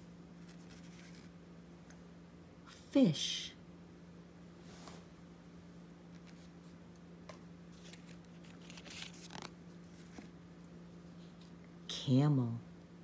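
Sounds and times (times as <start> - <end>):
faint low hum: 0.0 - 13.0
cardboard cards rustling: 0.4 - 1.3, 7.7 - 10.3.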